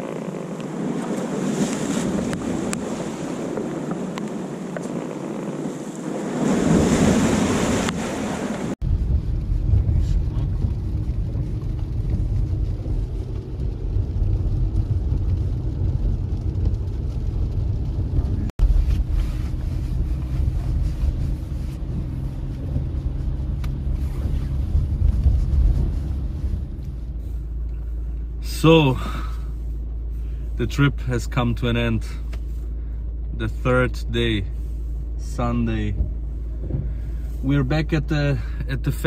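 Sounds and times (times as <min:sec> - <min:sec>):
car engine and tyres rumbling: 0:00.0 - 0:39.0
waves breaking on rocks: 0:00.6 - 0:08.8.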